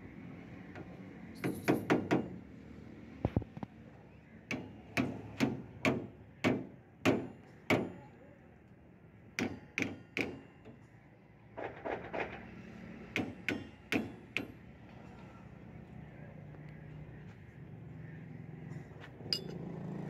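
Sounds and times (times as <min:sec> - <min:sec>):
hammer striking metal: 0:09.4 - 0:10.5, 0:19.3 - 0:19.6.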